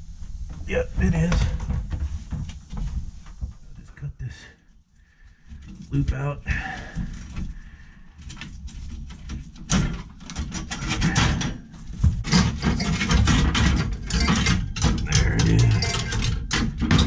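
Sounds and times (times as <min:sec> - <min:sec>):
tools scraping copper tubing: 0:08.2 - 0:17.0.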